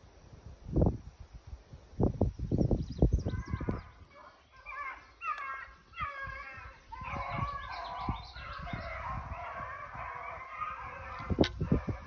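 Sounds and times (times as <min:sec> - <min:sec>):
wind on microphone: 0:00.0 - 0:04.1, 0:05.9 - 0:12.0
hounds baying: 0:03.3 - 0:12.0.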